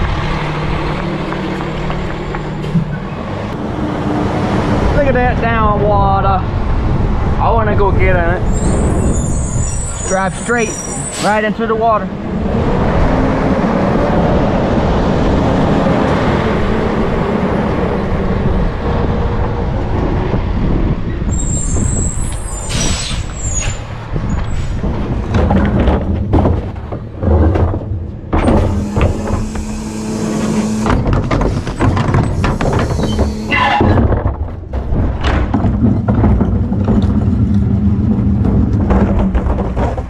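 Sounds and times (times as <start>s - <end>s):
engine low drone: 0.0s - 9.6s, 10.3s - 40.0s
high squeal: 8.4s - 11.5s, 21.3s - 24.7s, 28.7s - 31.0s, 32.2s - 34.0s
garbage truck rushing hiss: 21.3s - 24.8s
knocks and rattles: 23.7s - 40.0s.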